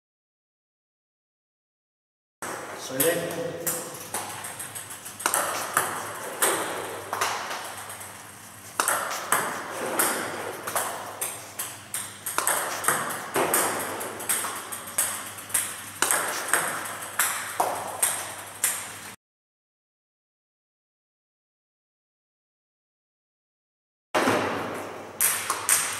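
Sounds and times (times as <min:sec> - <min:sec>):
ping pong ball clicks on paddle and table: 0:02.4 - 0:19.0, 0:24.2 - 0:25.9.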